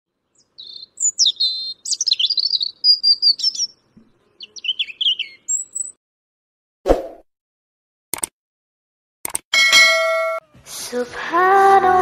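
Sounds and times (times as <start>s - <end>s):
lovebirds chattering: 0.4s - 6.0s.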